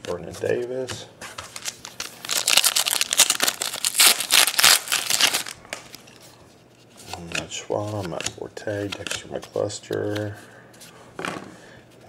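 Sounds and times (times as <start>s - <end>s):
foil wrapper tearing and crinkling: 1.5s - 6.0s.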